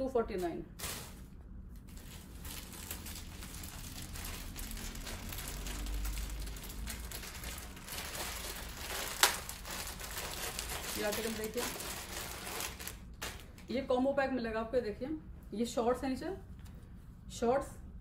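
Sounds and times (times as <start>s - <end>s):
plastic packaging crinkling: 0.8s - 13.7s.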